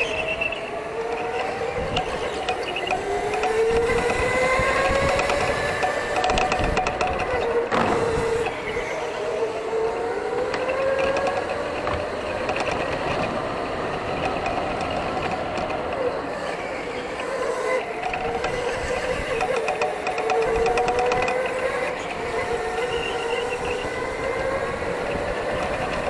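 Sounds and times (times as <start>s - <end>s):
electric go-kart motors whining: 0.0s - 26.0s.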